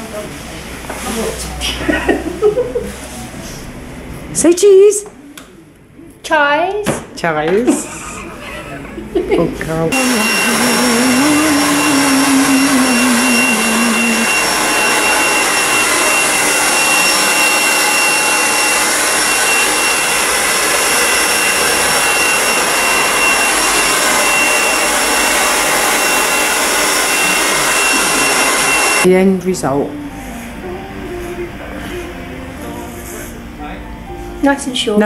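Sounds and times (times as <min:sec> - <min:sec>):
hair dryer running: 0:09.9 - 0:29.1.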